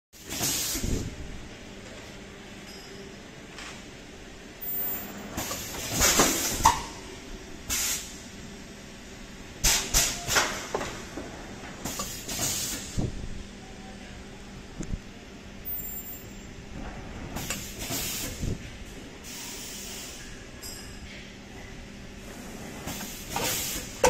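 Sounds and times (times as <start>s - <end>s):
compressed air hiss bursts: 0.2s - 1.0s, 7.7s - 8.1s, 11.9s - 13.0s, 17.4s - 18.5s.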